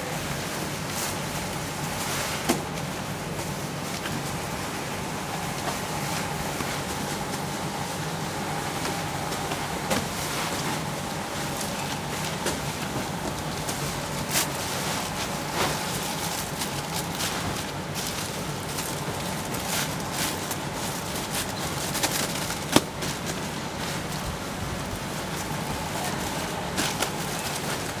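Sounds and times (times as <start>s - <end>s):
steady low hum: 0.0s - 28.0s
plastic bag crinkling: 10.8s - 28.0s.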